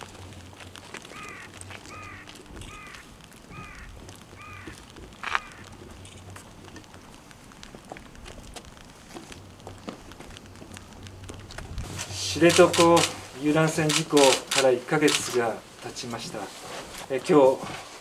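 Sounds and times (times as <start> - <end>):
crow cawing: 1.0 - 5.8.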